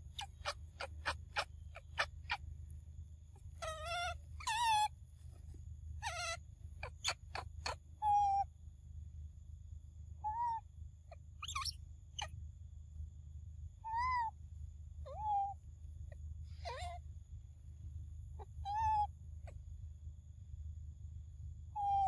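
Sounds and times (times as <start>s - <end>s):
monkey coo calls: 0.0s - 2.4s, 3.6s - 4.9s, 6.0s - 8.4s, 15.1s - 15.5s, 16.6s - 17.0s, 21.8s - 22.0s.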